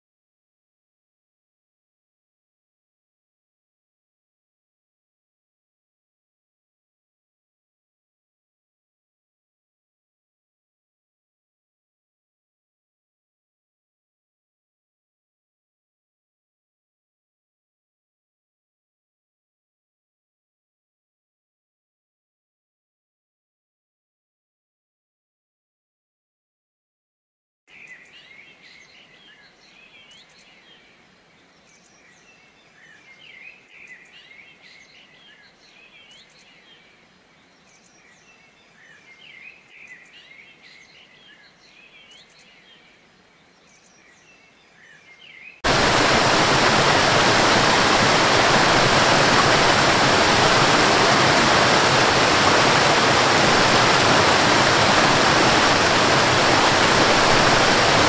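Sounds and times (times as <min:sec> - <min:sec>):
birds chirping: 0:27.7 - 0:58.0
waterfall rushing over rocks: 0:45.6 - 0:58.0.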